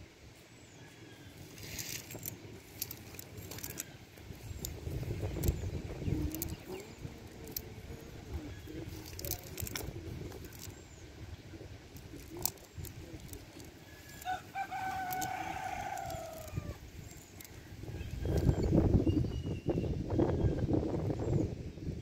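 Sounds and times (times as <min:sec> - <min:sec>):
cast net clicks and rustling: 0:01.5 - 0:18.9
rooster crowing: 0:13.9 - 0:16.8.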